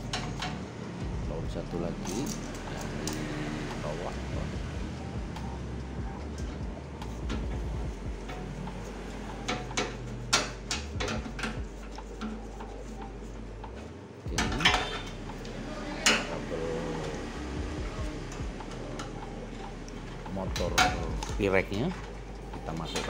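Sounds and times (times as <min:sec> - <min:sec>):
screwdriver tapping on sheet metal: 0:09.4 - 0:13.0.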